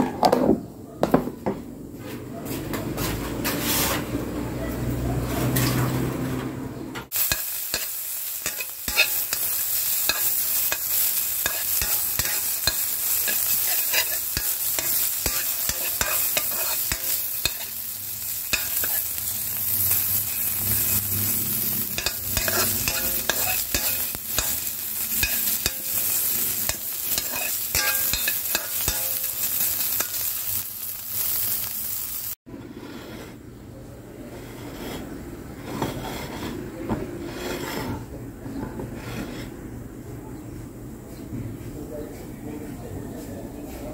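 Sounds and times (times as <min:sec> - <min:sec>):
spatula scraping a pan: 0:03.0 - 0:04.2, 0:07.1 - 0:33.5, 0:34.3 - 0:38.1, 0:38.8 - 0:39.6
meat sizzling in a pan: 0:07.1 - 0:32.4.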